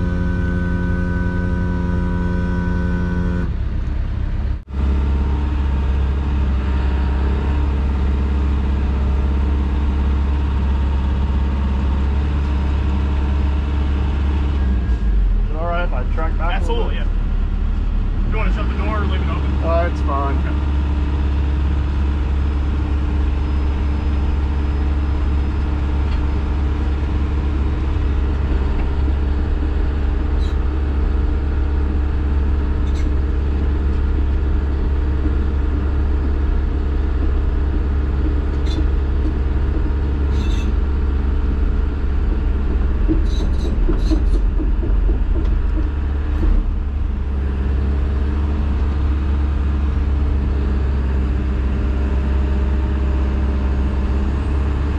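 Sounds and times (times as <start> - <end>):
excavator diesel engine hum: 0.0 - 54.9.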